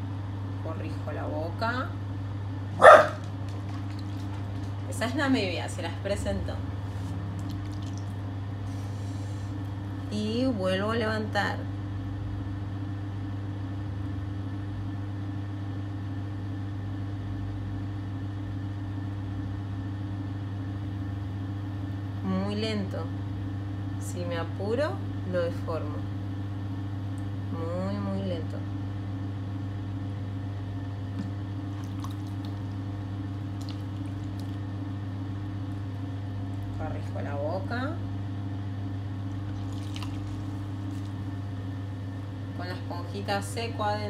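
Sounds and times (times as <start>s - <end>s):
potter's wheel motor hum: 0.0s - 44.0s
wet clay squishes and drips: 7.3s - 8.2s, 31.2s - 34.8s, 39.3s - 41.3s.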